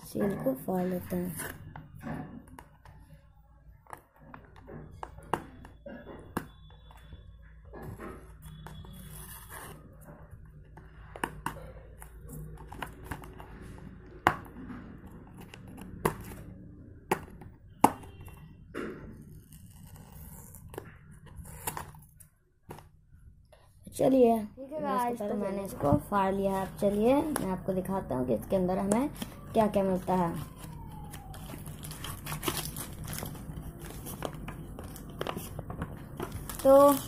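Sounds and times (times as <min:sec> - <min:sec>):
cardboard tearing and rustling: 0:30.2 - 0:37.0.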